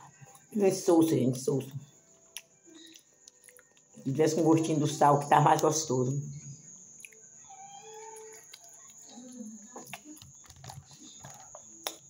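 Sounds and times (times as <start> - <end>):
faint chewing: 2.1 - 4.0, 7.0 - 12.0.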